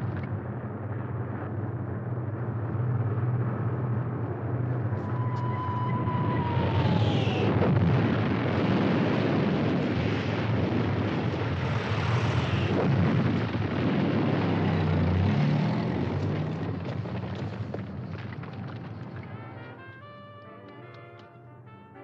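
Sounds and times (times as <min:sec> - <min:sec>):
aircraft rumble: 0:00.0 - 0:22.0
explosions: 0:04.8 - 0:19.6.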